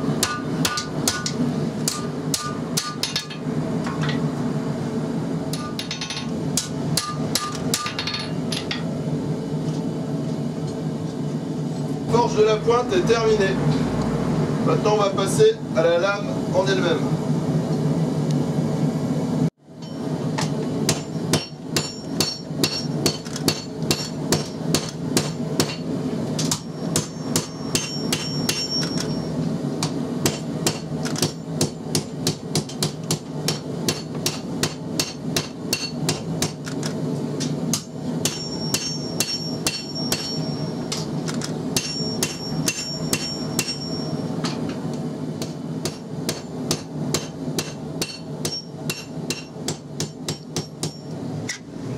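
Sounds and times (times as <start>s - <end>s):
hammer blows on anvil: 19.8s - 36.6s, 37.7s - 41.1s, 41.7s - 44.7s
high anvil ring: 20.9s - 25.9s, 26.5s - 29.4s, 38.2s - 41.1s, 41.8s - 44.5s, 48.0s - 49.5s.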